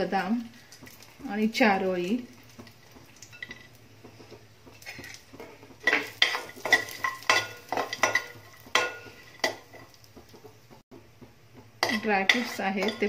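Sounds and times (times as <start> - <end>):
metal spoon scraping pan: 2.6 - 10.0, 11.8 - 13.0.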